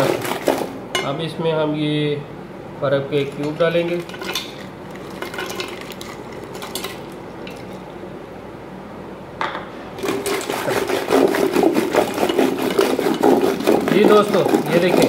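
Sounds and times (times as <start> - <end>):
churning stick rattling in pot: 10.0 - 15.0.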